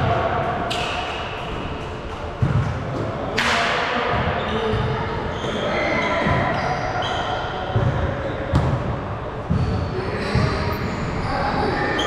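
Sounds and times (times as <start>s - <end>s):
basketball bouncing: 2.4s - 2.7s
shoe squeaks: 4.4s - 8.6s.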